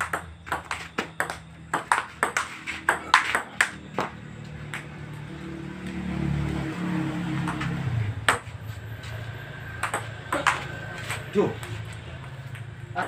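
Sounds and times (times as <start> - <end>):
ball bouncing on table: 0.0 - 4.9, 7.4 - 8.6, 9.8 - 12.7.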